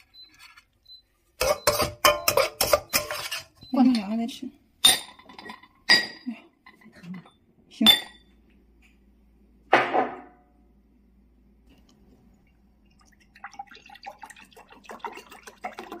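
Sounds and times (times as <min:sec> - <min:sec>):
drink pouring into cup: 0:12.8 - 0:16.0.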